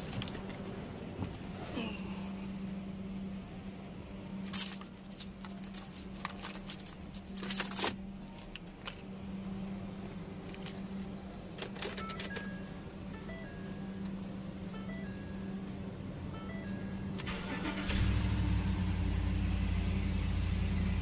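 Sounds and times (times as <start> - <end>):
steady low hum: 0.0 - 21.0
keys jangling: 4.4 - 8.0.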